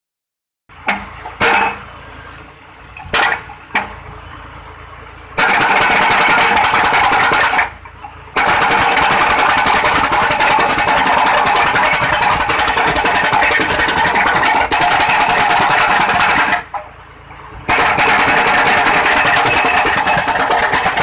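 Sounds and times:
engine running: 0.7s - 21.0s
sharp metal clanks: 0.9s - 1.9s, 3.0s - 3.9s, 17.7s - 21.0s
rapid machine hammering: 5.4s - 7.7s, 8.4s - 16.7s, 17.7s - 21.0s.

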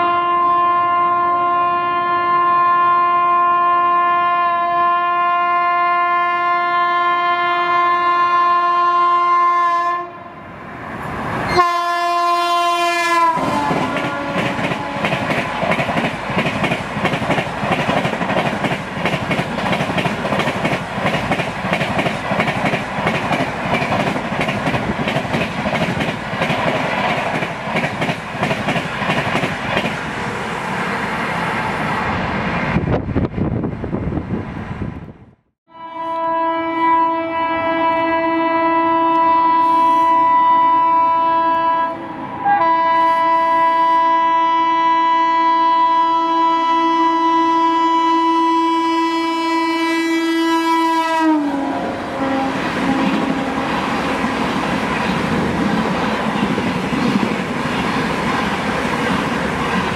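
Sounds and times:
locomotive horn blast: 0.0s - 10.4s, 11.5s - 15.8s, 35.7s - 54.4s
train wheels clattering over rail joints: 13.7s - 30.0s.

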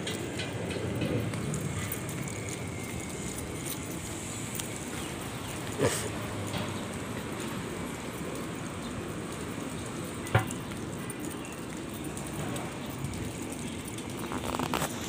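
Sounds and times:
traffic: 0.0s - 15.0s.

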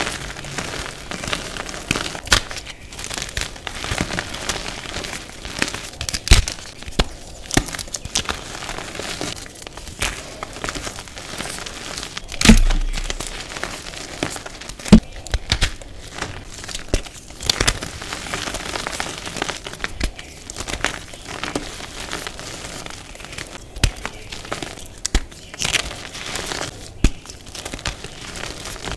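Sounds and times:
chalk pieces snapping: 5.5s - 28.9s
dull thud: 12.4s - 13.5s.

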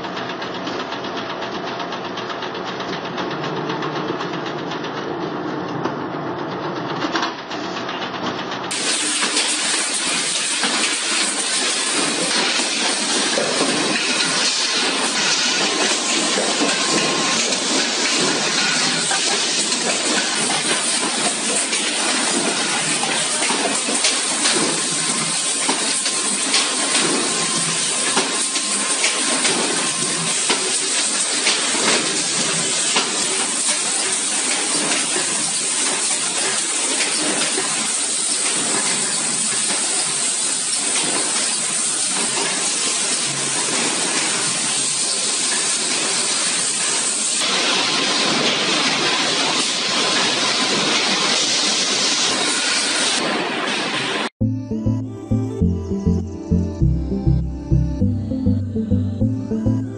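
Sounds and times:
factory machinery hiss: 8.7s - 44.9s.

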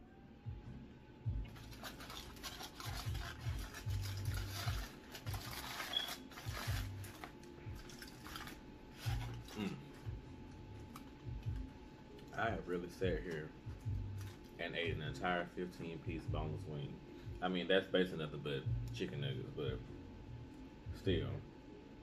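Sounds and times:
background music: 0.0s - 22.0s
aluminium foil crinkling: 1.4s - 12.4s, 13.2s - 14.6s
plastic fork scraping foil tray: 1.5s - 9.7s.

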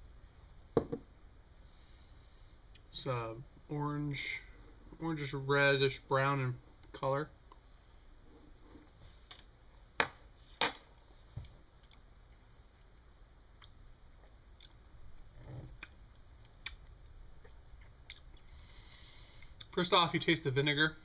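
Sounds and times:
lip smacks and tongue clicks: 13.6s - 14.8s, 15.8s - 18.5s.

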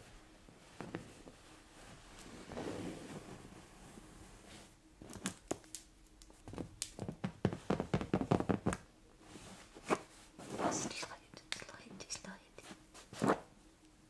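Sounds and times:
fingernails tapping on fabric cushion: 6.4s - 8.9s.

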